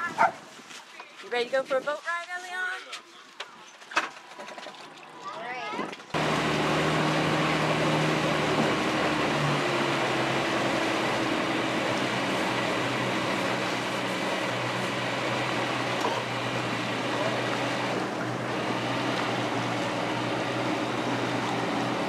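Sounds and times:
boat engine running: 0:06.2 - 0:22.0.

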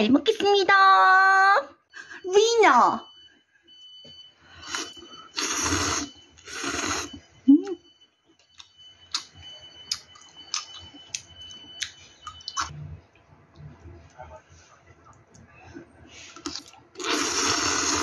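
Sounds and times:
noodles slurped: 0:04.6 - 0:07.2, 0:16.4 - 0:18.0
chewing with wet mouth clicks: 0:08.4 - 0:13.8, 0:16.4 - 0:17.2.

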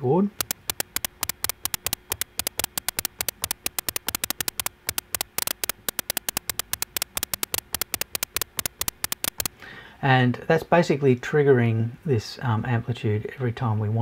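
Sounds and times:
short white-noise clicks: 0:00.3 - 0:09.6.

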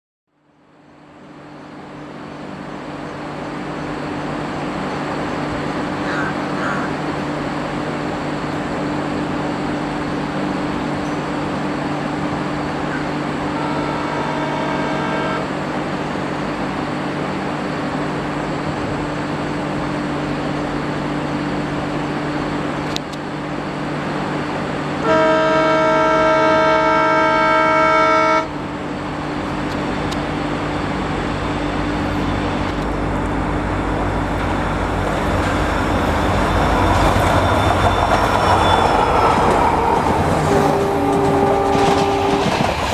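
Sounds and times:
diesel locomotive droning: 0:00.5 - 0:42.9
locomotive horn blasts: 0:13.5 - 0:15.5, 0:25.0 - 0:28.5, 0:38.8 - 0:42.6.

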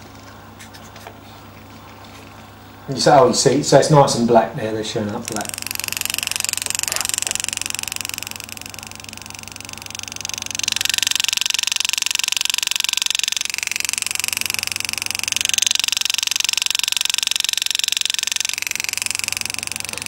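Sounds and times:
pneumatic engraving tool buzzing: 0:05.1 - 0:20.0.

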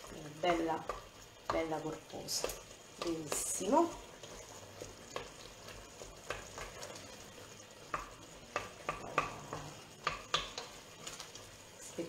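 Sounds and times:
spoon knocking on steel pot: 0:07.9 - 0:10.6.

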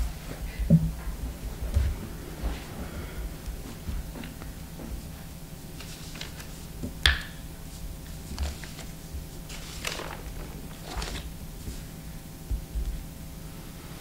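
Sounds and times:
electrical hum: 0:00.0 - 0:14.0
paper rustling and light bumps: 0:03.8 - 0:07.0, 0:07.7 - 0:13.0.

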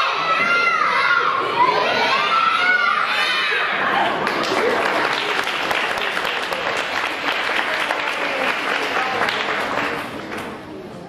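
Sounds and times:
crowd applause: 0:03.7 - 0:10.6.

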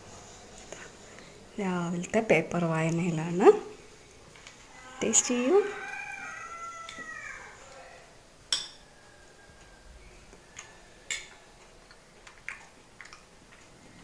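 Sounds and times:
metal spoon clinking on plate: 0:08.5 - 0:08.8.

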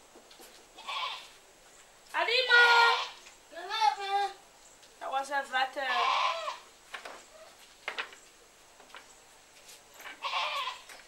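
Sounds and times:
goat bleating: 0:00.8 - 0:01.4, 0:02.4 - 0:04.4, 0:05.8 - 0:06.7, 0:10.2 - 0:10.9.

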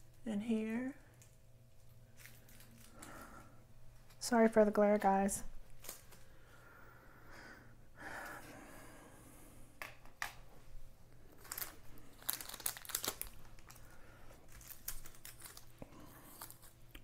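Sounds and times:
plastic bags crinkling: 0:01.2 - 0:03.2, 0:05.6 - 0:06.3, 0:11.2 - 0:17.0.

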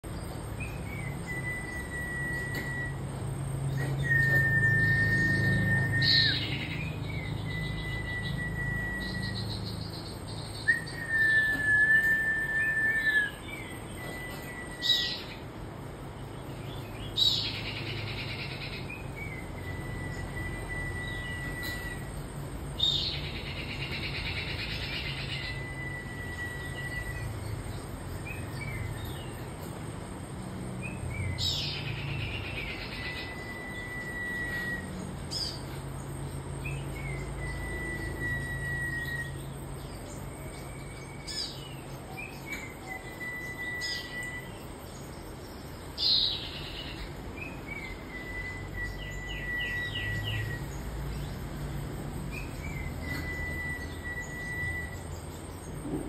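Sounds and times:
songbird chirping and whistling: 0:00.1 - 0:29.8, 0:30.7 - 0:56.0.

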